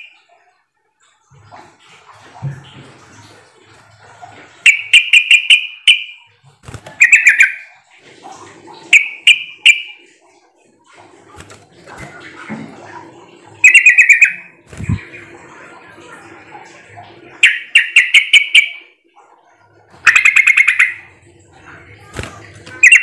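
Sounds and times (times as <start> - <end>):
bird singing bubbling notes: 0.0 - 0.4, 4.6 - 6.4, 7.0 - 7.9, 8.7 - 10.2, 13.5 - 16.0, 16.8 - 23.0.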